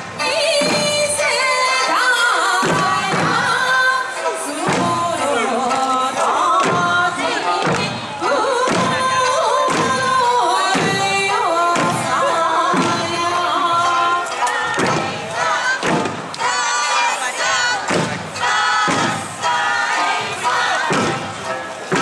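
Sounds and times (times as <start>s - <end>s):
heavy drum strikes: 0.0s - 22.0s
person singing folk song: 0.0s - 22.0s.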